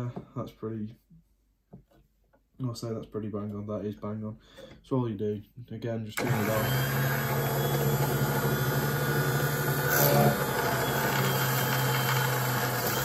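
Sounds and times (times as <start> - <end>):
drill press motor drilling metal: 6.2 - 13.0.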